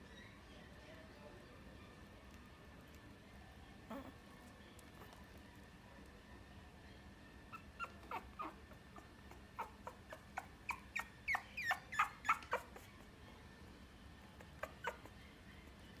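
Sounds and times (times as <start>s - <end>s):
puppy whimpering: 3.9s - 4.2s, 7.5s - 13.1s, 14.4s - 15.2s.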